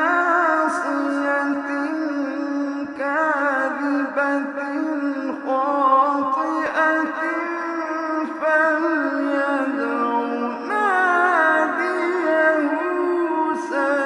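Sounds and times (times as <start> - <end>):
man reciting melodically: 0.0 - 14.0.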